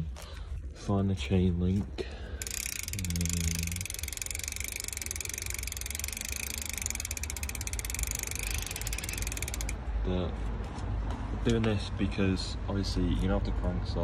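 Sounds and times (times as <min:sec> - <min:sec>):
bicycle freehub ticking: 0:02.4 - 0:09.8.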